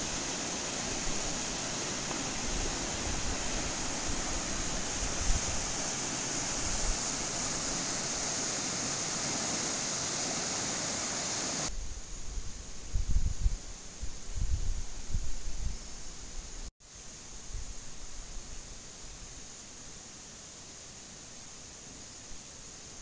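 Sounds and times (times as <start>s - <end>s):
wind buffeting microphone: 0.0s - 8.3s, 11.8s - 15.8s
river water rushing: 0.0s - 11.7s.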